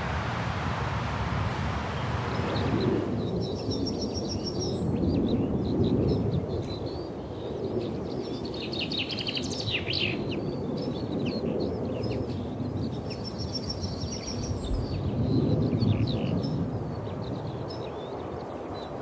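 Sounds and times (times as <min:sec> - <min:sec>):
steady low rumble: 0:00.0 - 0:04.3
songbirds chirping and singing: 0:02.0 - 0:19.0.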